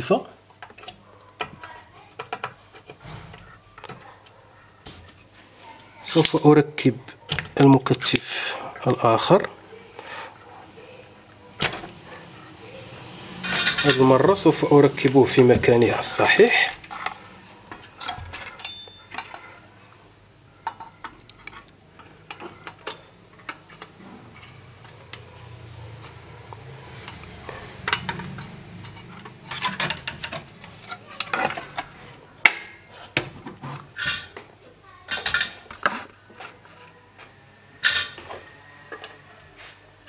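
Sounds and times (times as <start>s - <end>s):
hand tools clicking and clinking: 13.4s - 15.4s, 16.0s - 20.0s, 20.6s - 32.8s, 35.1s - 36.7s, 37.8s - 39.3s.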